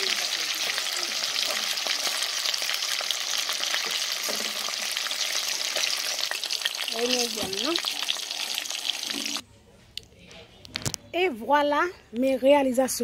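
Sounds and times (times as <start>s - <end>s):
meat sizzling in hot oil: 0.0s - 9.4s
metal utensil stirring: 3.8s - 9.4s.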